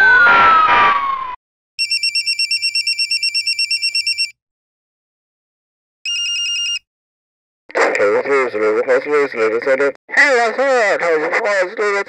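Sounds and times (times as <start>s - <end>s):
electronic telephone ringing: 1.8s - 4.4s, 6.1s - 6.8s.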